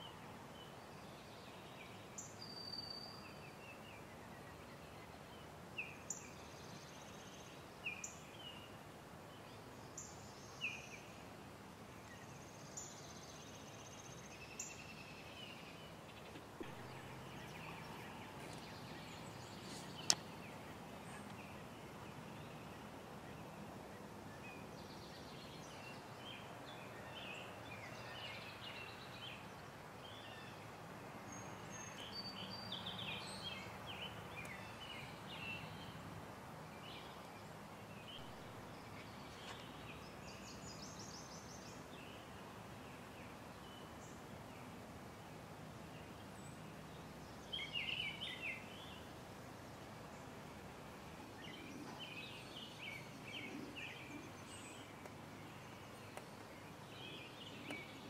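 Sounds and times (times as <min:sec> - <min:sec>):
faint background hiss: 0:00.0 - 0:58.0
birds singing: 0:12.0 - 0:30.7, 0:31.3 - 0:44.8, 0:45.8 - 0:58.0.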